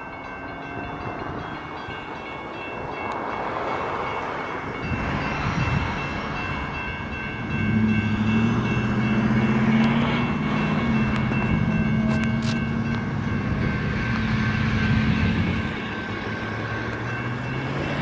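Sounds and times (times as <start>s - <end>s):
railroad crossing bell ringing: 0.0s - 18.0s
train locomotive rumble: 0.0s - 18.0s.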